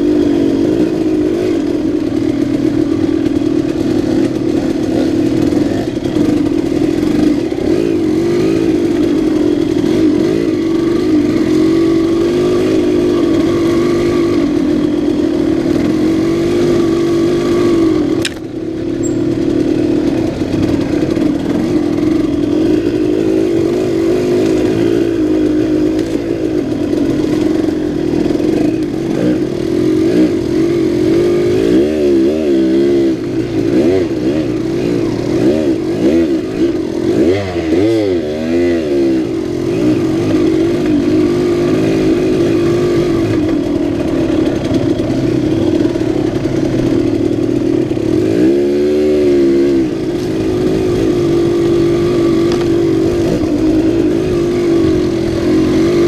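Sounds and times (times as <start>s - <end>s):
two-stroke engine revving: 0.0s - 56.0s
sharp click: 18.2s - 19.2s.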